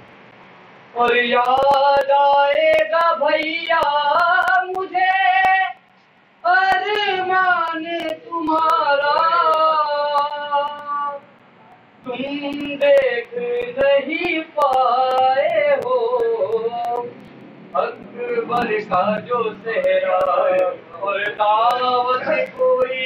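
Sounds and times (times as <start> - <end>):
high voice chanting a lament: 12.0 - 17.1, 17.8 - 23.0.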